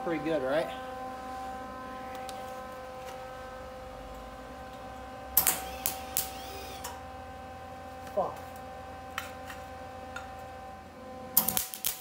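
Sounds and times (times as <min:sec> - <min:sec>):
steady hum: 0:00.0 - 0:12.0
welder arc crackle: 0:02.0 - 0:07.0, 0:11.3 - 0:12.0.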